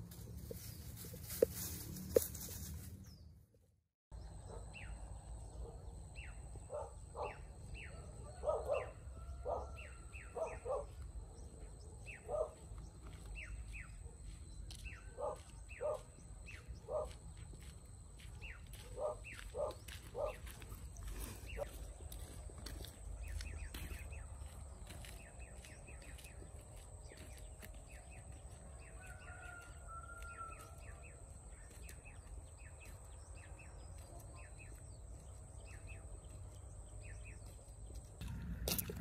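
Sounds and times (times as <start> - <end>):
dog barking: 6.7 - 11.0, 12.1 - 12.6, 15.2 - 16.1, 16.9 - 17.2, 18.8 - 20.6.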